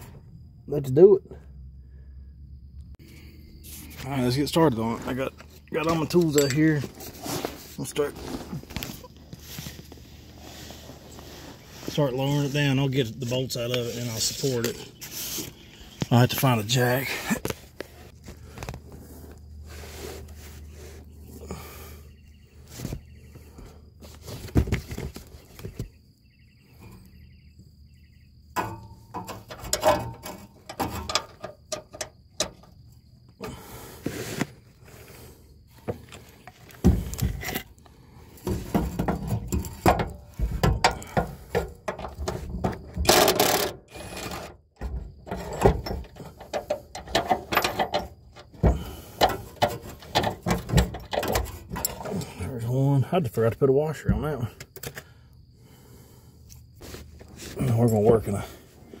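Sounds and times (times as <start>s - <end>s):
wrenches clicking and clanking on bolts: 5.8s - 6.9s, 28.6s - 32.6s, 38.6s - 52.4s.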